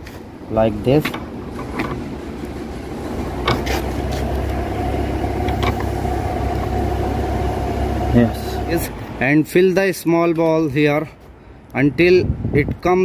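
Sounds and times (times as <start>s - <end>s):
low mechanical drone: 0.0s - 9.3s
metal parts clicking: 1.0s - 2.1s.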